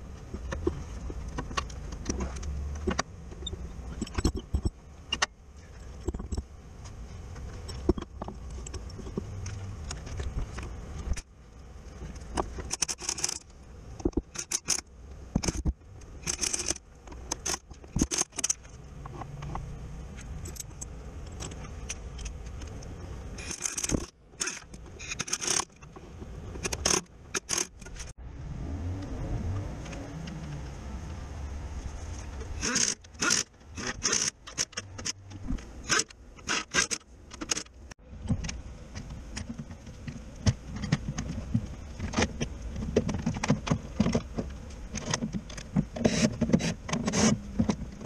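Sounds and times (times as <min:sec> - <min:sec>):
steady low rumble: 0:28.0 - 0:33.8.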